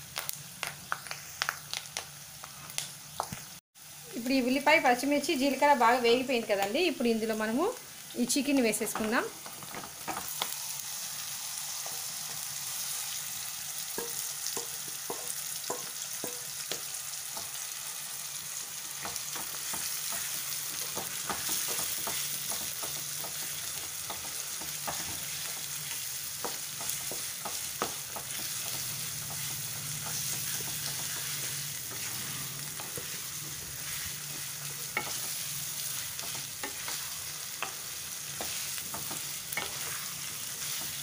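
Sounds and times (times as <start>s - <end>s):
chicken sizzling in oil: 0.0s - 41.0s
spatula scraping a pan: 26.8s - 41.0s.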